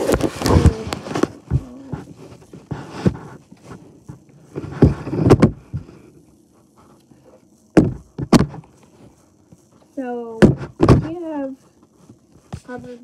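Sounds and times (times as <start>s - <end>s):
knocks of objects handled: 0.0s - 5.9s, 7.7s - 8.8s, 10.4s - 11.2s.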